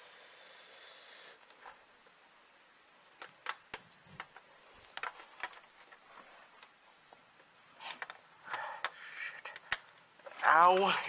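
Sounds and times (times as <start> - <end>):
cable connectors clicking: 3.0 - 6.0, 7.9 - 10.9.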